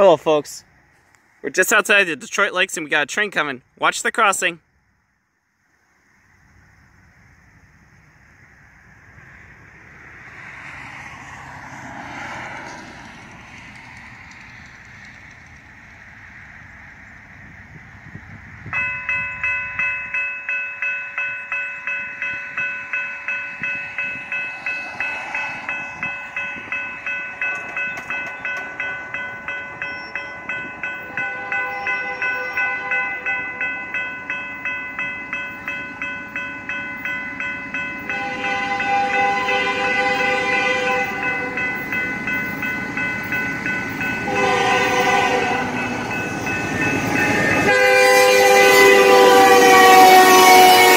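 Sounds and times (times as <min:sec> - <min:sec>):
railroad crossing bell ringing: 0:01.5 - 0:04.5, 0:18.1 - 0:50.9
locomotive horn blasts: 0:31.0 - 0:33.6, 0:38.0 - 0:41.6, 0:44.2 - 0:45.9, 0:47.2 - 0:50.9.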